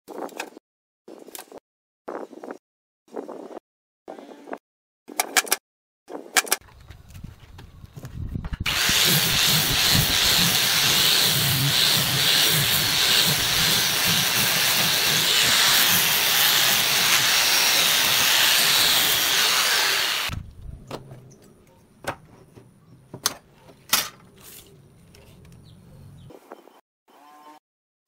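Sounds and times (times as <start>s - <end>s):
angle grinder sanding wood: 8.7s - 20.3s.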